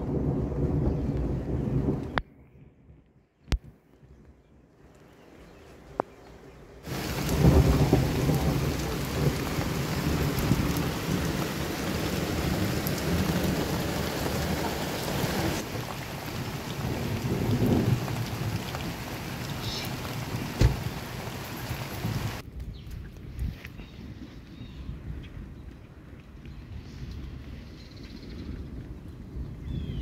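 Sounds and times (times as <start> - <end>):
thunder rumbling: 0.0 - 2.3, 6.9 - 22.4
heavy rain falling: 6.8 - 22.4.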